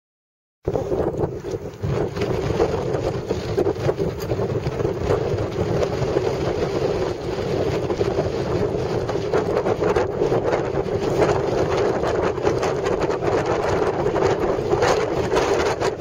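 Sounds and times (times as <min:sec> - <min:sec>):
wind buffeting microphone: 0:00.6 - 0:16.0.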